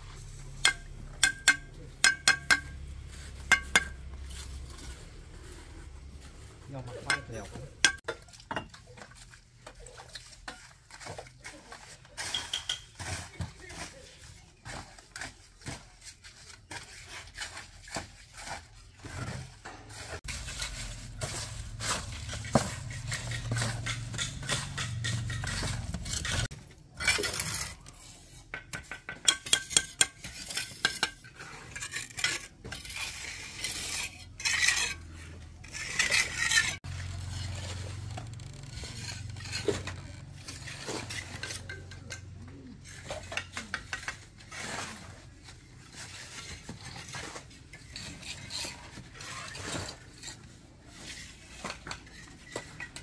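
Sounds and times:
metal utensils clinking on pots: 0:21.7 - 0:27.4.

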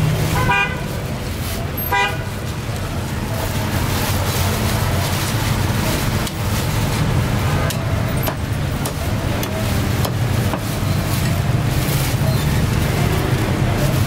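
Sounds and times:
street traffic rumble: 0:00.0 - 0:14.0.

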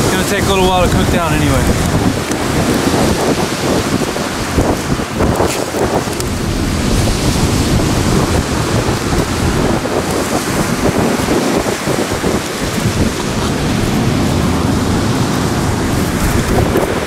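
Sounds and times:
ocean surf: 0:00.0 - 0:17.0
wind on microphone: 0:00.0 - 0:17.0.

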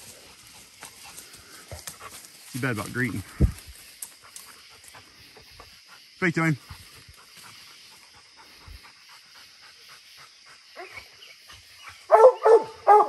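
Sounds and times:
dog panting: 0:04.1 - 0:11.6
dog barking: 0:12.1 - 0:13.0.

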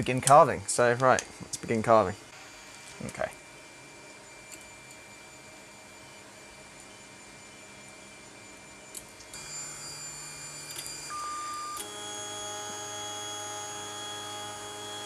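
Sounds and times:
stepper motors whining: 0:06.8 - 0:15.0.

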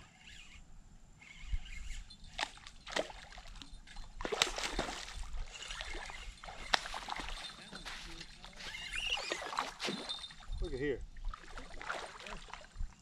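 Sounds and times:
fish splashing in water: 0:04.2 - 0:07.6.

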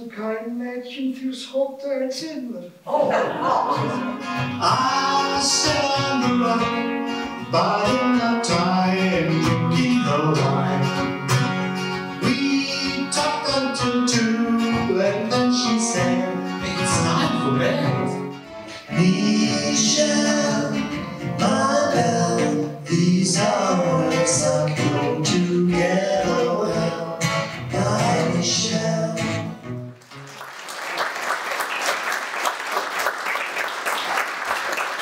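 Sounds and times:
acoustic guitar: 0:02.8 - 0:30.6
man singing into a microphone: 0:04.6 - 0:11.1, 0:12.2 - 0:18.2, 0:18.8 - 0:29.6
audience applause: 0:30.0 - 0:35.0.

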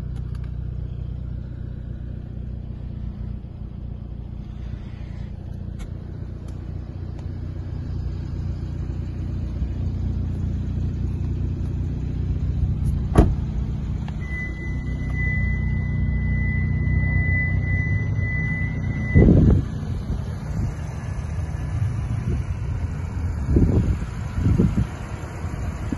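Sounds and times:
car engine idling: 0:00.0 - 0:25.9
thump: 0:12.8 - 0:13.6
high electronic beep: 0:14.2 - 0:19.5.

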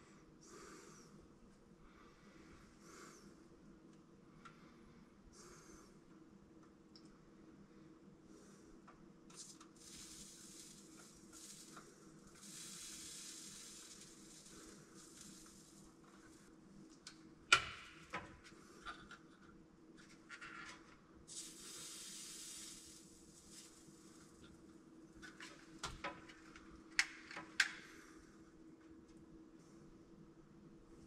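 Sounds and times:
steady low hum: 0:00.0 - 0:27.0, 0:27.7 - 0:31.0
aerosol can spraying: 0:09.4 - 0:16.3, 0:21.3 - 0:24.3.

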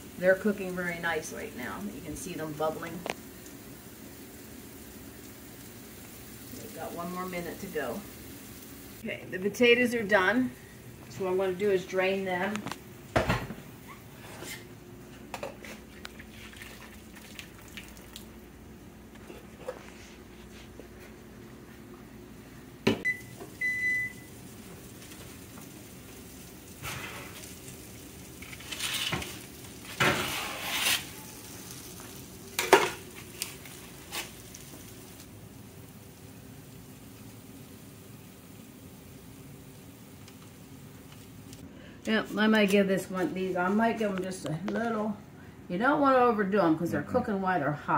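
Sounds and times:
foil rustling: 0:24.5 - 0:35.2
metal spatula scraping baking sheet: 0:28.5 - 0:31.2.

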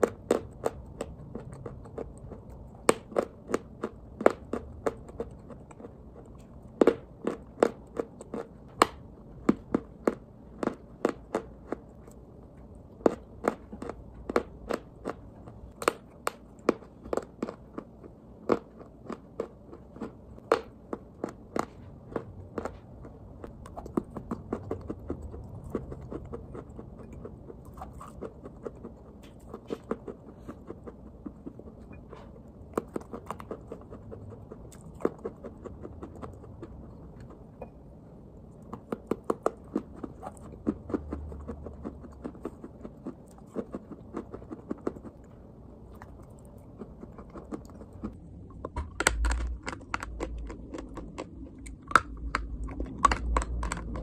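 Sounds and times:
chalk crunching when chewed: 0:00.0 - 0:37.4, 0:38.6 - 0:54.0.

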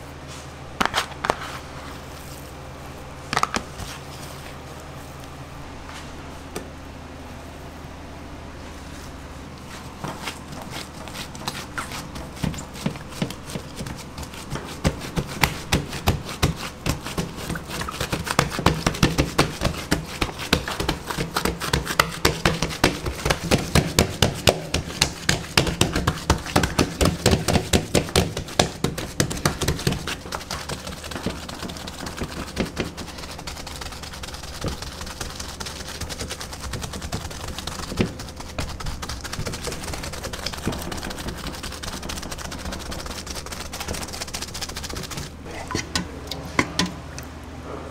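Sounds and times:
fingertips patting pizza dough: 0:09.9 - 0:46.9.

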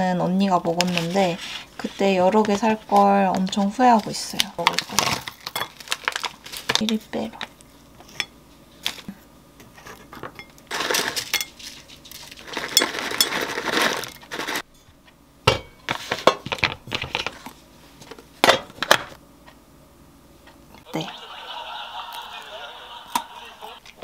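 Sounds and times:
snack pieces poured into bowl: 0:10.7 - 0:14.6.

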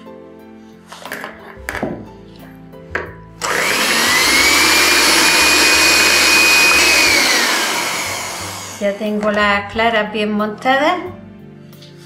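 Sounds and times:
electric hand mixer whining: 0:03.4 - 0:09.0.

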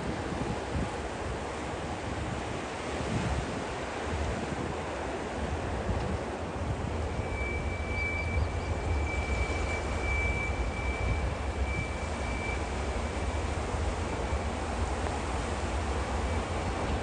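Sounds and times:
freight train low rumble: 0:00.0 - 0:17.0
high wheel flange squeal: 0:06.8 - 0:17.0.

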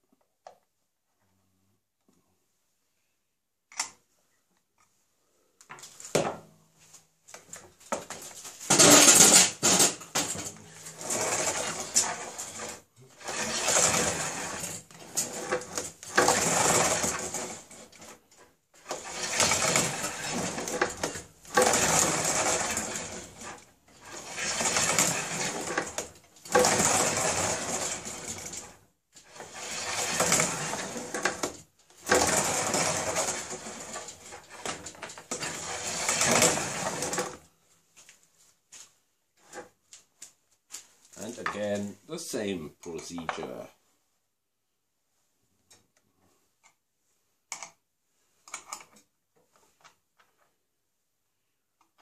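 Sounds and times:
rifling cutter scraping steel barrel: 0:08.7 - 0:18.2, 0:18.8 - 0:28.7, 0:29.3 - 0:37.4.

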